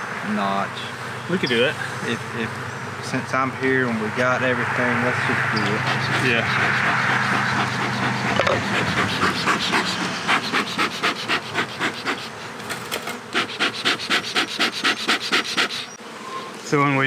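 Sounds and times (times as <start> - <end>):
bellows pumped in quick puffs: 5.1 - 12.6, 13.2 - 15.9.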